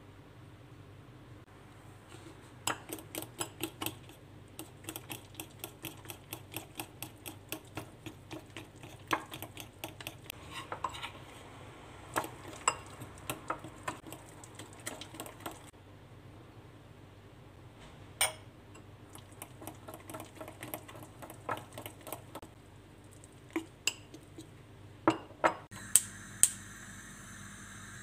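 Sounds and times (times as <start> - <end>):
spoon stirring batter in bowl: 2.1 - 11.4, 12.1 - 15.7, 18.8 - 22.5, 23.1 - 24.6.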